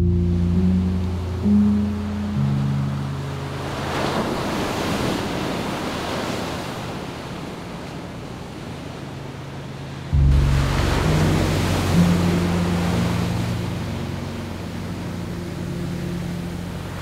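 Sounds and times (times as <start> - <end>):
wind: 0.0 - 17.0
sea waves breaking on shore: 1.5 - 17.0
steady low hum: 10.1 - 17.0.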